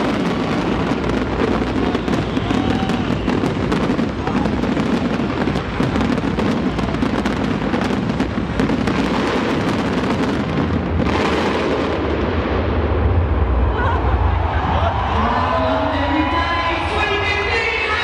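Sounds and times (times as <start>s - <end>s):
fireworks hissing rush: 0.0s - 13.4s
fireworks bangs and crackles: 0.0s - 15.1s.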